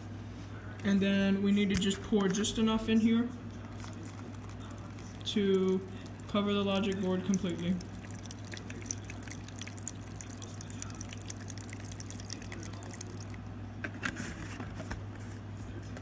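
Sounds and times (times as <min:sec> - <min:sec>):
liquid pouring into container: 0:03.6 - 0:13.6.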